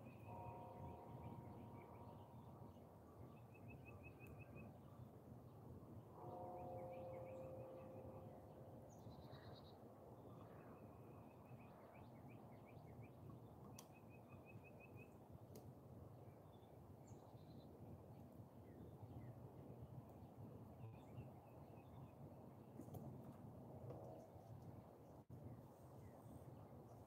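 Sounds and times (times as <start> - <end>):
faint held tone: 0.1 - 2.8, 6.2 - 8.6.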